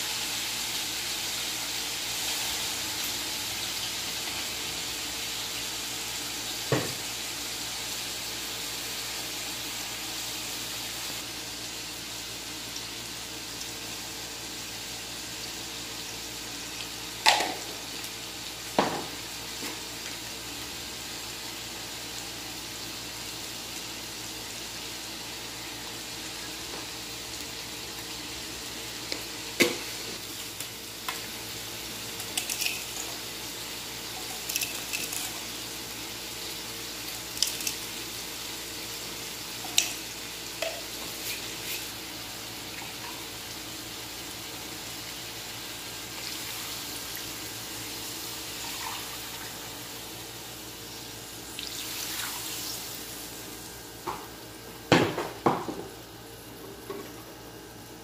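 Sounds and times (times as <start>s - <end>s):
water pouring into a wok: 51.6s - 53.3s.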